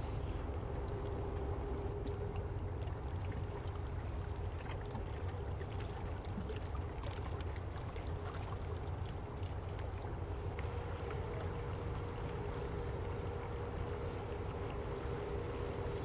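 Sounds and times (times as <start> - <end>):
faint ticking water: 0.0 - 16.0
ship engines rumbling: 10.2 - 16.0.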